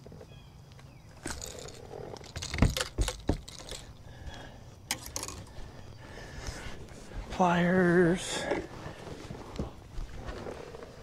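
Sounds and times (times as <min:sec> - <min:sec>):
metallic jangling and clinks: 0:01.2 - 0:04.0.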